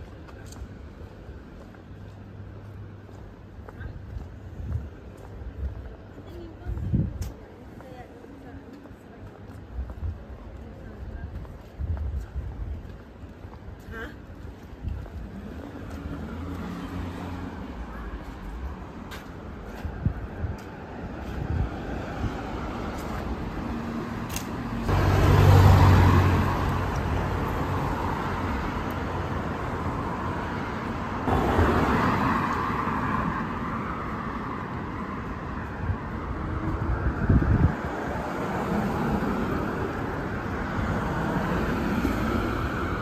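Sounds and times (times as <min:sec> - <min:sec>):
steady traffic hum: 0:00.0 - 0:43.0
cars driving past: 0:15.2 - 0:43.0.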